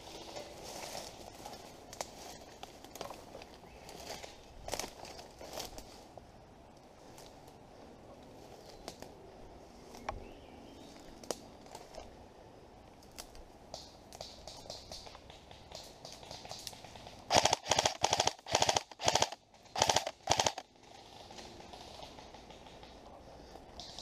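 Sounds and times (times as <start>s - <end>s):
airsoft gun firing rapid bursts: 14.9s - 20.6s.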